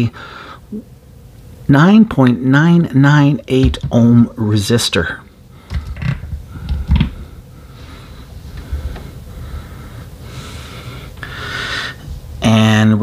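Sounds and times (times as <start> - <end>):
test probes clicking: 5.6 - 7.2.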